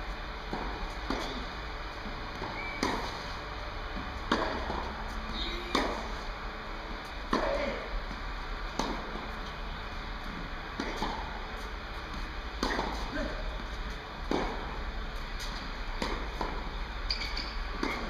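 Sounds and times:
tennis racket hitting ball: 0.5s - 1.4s, 2.3s - 3.2s, 4.3s - 6.2s, 7.3s - 7.8s, 8.8s - 9.2s, 10.8s - 11.3s, 12.0s - 14.7s, 15.4s - 16.7s, 17.7s - 18.0s.

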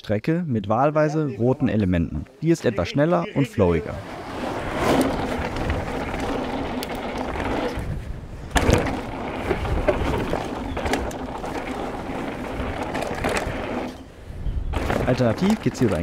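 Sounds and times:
tyres rolling on dirt: 2.7s - 16.0s
wind on microphone: 3.8s - 16.0s
bike knocking and rattling: 4.3s - 16.0s.

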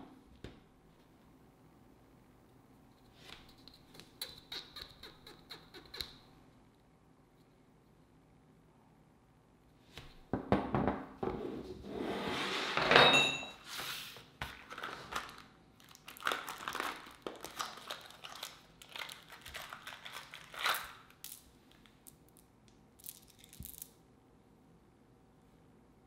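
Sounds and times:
packaging crinkling and tearing: 14.5s - 21.9s.

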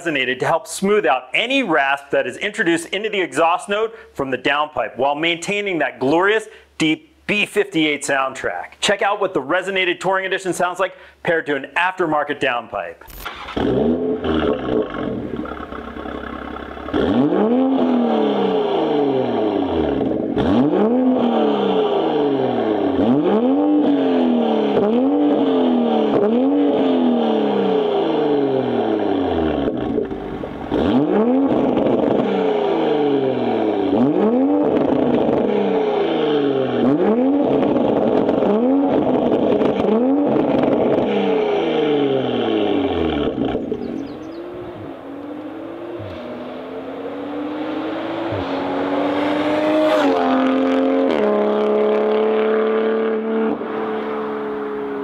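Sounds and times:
car engine idling: 13.0s - 17.3s, 27.9s - 50.8s
car engine revving: 13.0s - 55.0s.

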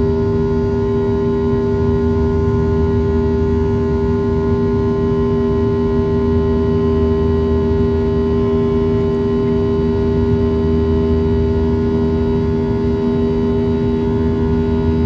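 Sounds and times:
constant hum tones: 0.0s - 15.0s
jet engines droning in cabin: 0.0s - 15.0s.

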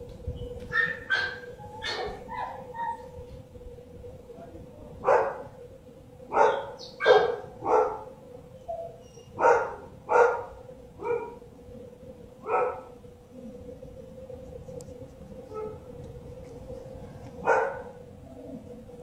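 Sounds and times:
dog barking: 0.7s - 3.0s, 5.0s - 5.4s, 6.3s - 8.1s, 8.8s - 11.4s, 12.4s - 12.9s, 17.4s - 18.0s.

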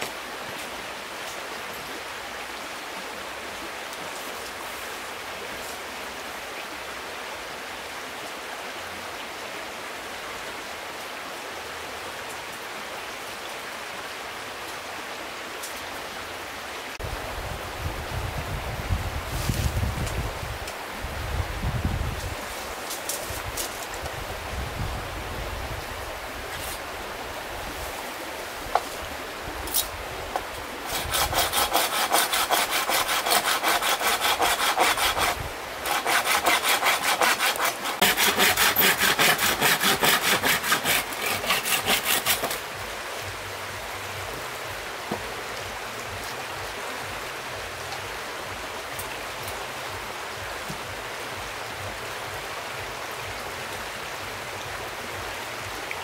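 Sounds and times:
stream running: 0.0s - 56.0s
hand saw cutting bamboo: 30.8s - 42.6s.

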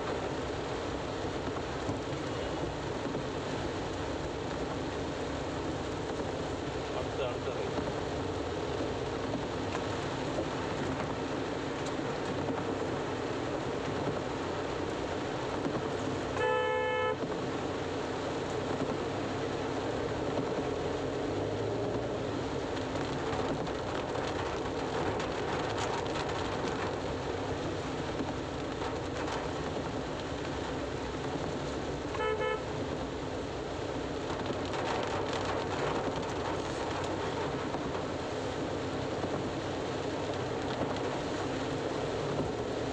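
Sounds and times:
rain on a car: 0.0s - 42.9s
road noise inside a car: 0.0s - 42.9s
vehicle horn toots: 16.4s - 17.2s, 32.2s - 32.6s.

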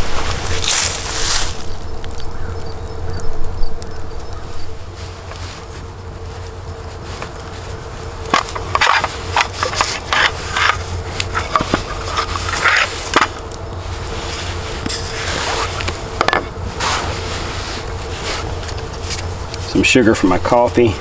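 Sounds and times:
steady low rumble: 0.0s - 21.0s
sharp clicks and scrapes: 8.2s - 13.6s.

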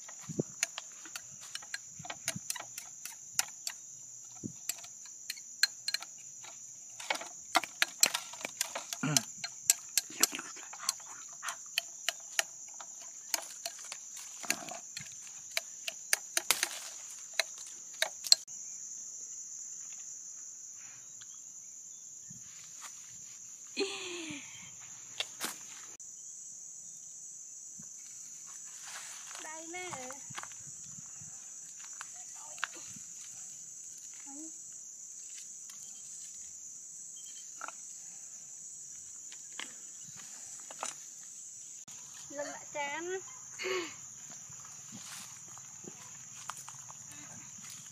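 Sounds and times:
insects droning: 0.0s - 47.9s
sharp irregular clicks: 4.6s - 18.5s.

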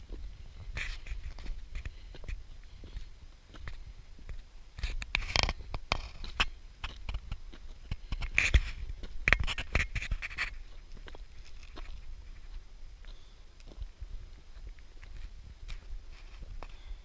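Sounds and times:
footsteps crunching on rock: 0.0s - 17.0s
gear scraping against camera: 0.6s - 12.6s, 15.0s - 17.0s.

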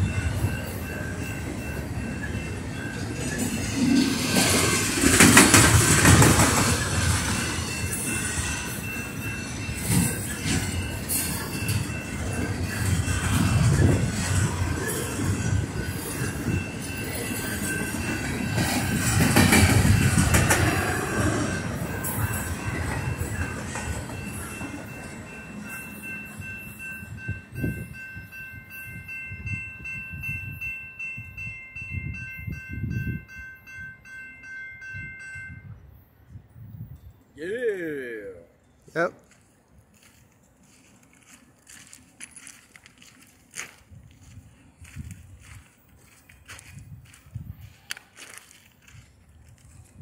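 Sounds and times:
train wheel squeal: 0.0s - 28.1s
crossing bell ringing: 0.0s - 37.2s
train cars rumbling and rattling: 0.0s - 37.3s, 39.2s - 50.0s.

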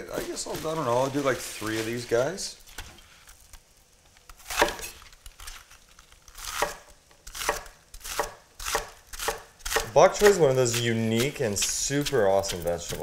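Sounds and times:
knife slicing onto cutting board: 4.4s - 4.9s.

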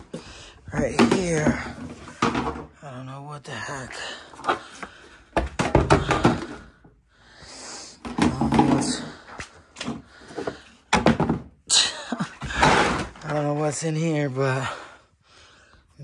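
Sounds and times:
boxes and plastic tote knocking: 0.8s - 2.7s, 5.4s - 6.6s, 8.0s - 9.2s, 9.9s - 11.6s.

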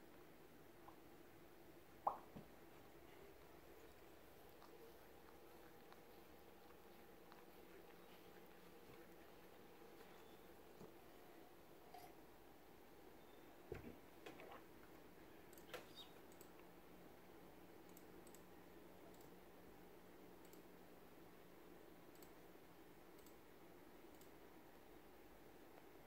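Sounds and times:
faint ticks: 20.4s - 20.8s, 23.1s - 23.4s.

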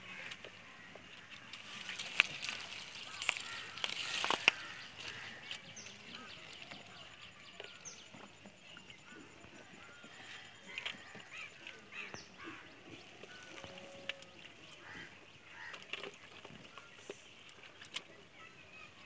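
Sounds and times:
birds calling: 0.0s - 19.0s.

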